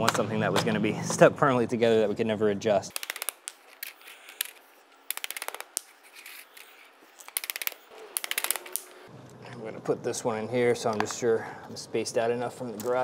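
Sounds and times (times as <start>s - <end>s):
plastic floor tiles clicking: 2.9s - 9.0s.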